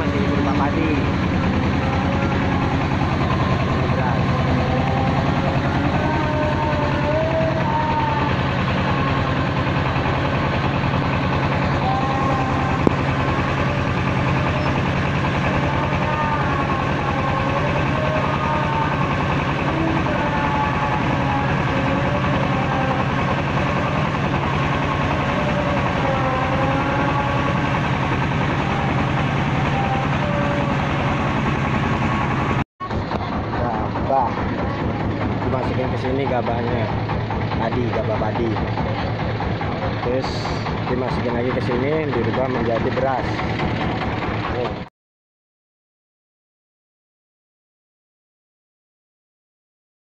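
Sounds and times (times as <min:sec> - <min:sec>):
wavering whine: 0:00.0 - 0:32.6
rice mill mechanical drone: 0:00.0 - 0:44.9.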